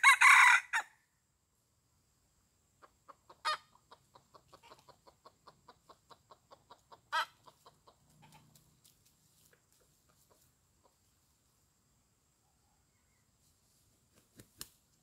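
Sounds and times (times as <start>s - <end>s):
rooster clucking: 2.8s - 8.6s.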